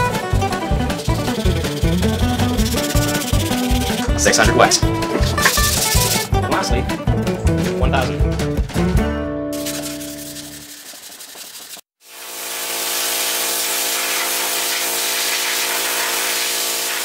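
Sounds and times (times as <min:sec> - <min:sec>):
hand sanding: 0:00.5 - 0:06.3, 0:09.6 - 0:11.9, 0:12.8 - 0:17.0
air blow gun hissing: 0:00.8 - 0:04.3, 0:12.1 - 0:17.0.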